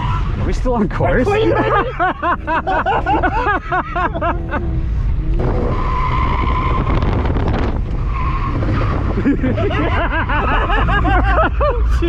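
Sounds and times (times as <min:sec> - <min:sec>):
car engine low drone: 0:00.0 - 0:12.0
car tyres squealing: 0:00.0 - 0:12.0.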